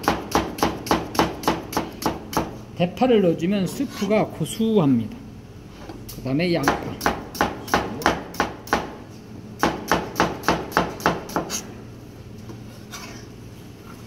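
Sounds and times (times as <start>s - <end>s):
knife chopping on plastic board: 0.0s - 2.5s.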